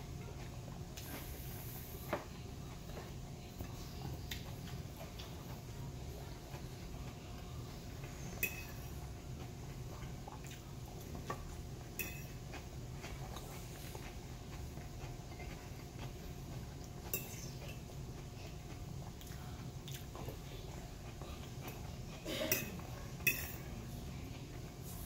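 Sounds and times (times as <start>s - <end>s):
steady low hum: 0.0s - 25.0s
fork clinking against plate: 8.3s - 8.9s, 12.0s - 12.4s, 17.0s - 17.8s, 22.5s - 23.7s.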